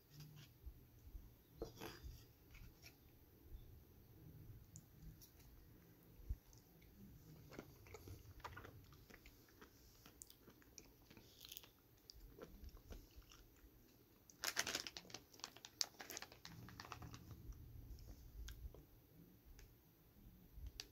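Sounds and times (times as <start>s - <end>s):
plastic bag crinkling: 14.3s - 17.5s.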